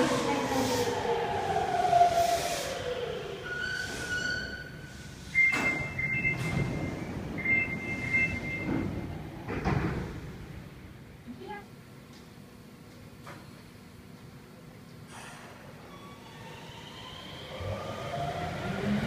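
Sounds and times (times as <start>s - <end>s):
subway train motor whine: 0.0s - 13.0s, 13.7s - 19.0s
sliding doors rushing: 5.2s - 10.7s.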